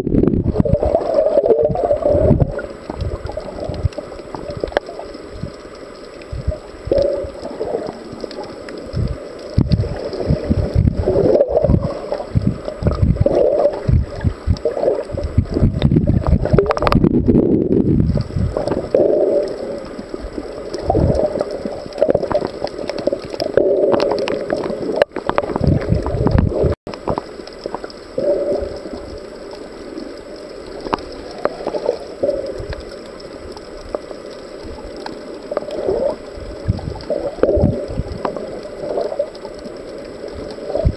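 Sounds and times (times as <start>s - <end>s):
muffled underwater gurgling: 0.0s - 40.9s.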